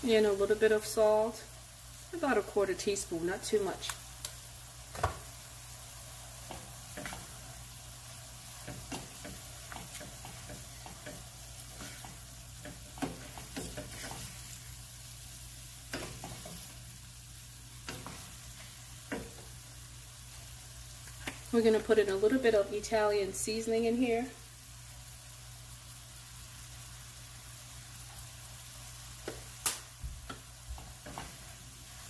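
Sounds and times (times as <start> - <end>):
meat sizzling in a skillet: 0.0 - 32.0
wooden spoon scraping a pan: 6.4 - 7.7, 8.4 - 14.7.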